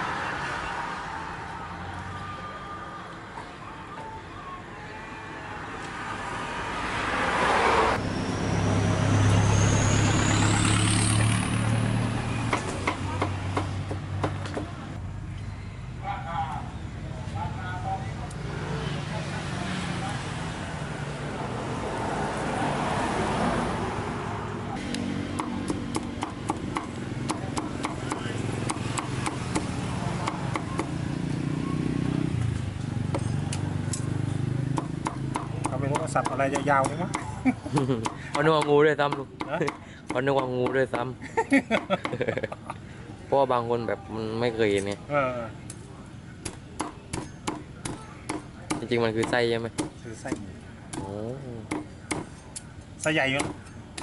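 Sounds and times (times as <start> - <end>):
cleaver chopping on wooden block: 25.4 - 31.0, 34.7 - 40.8, 46.4 - 51.1, 51.7 - 52.3, 53.4 - 54.0.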